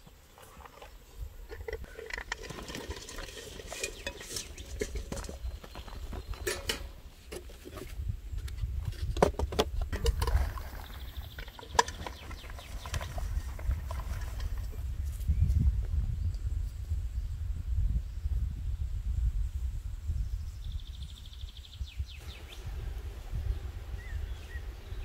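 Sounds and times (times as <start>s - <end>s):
clicks taps and rustles: 0.4s - 14.8s.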